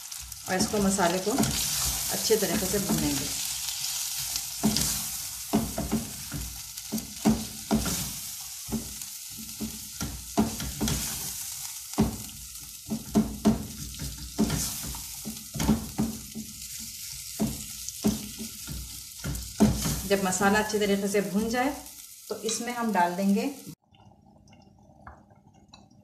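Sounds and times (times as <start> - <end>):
food sizzling in oil: 0.0 - 23.8
wooden spoon scraping pot: 12.9 - 20.4.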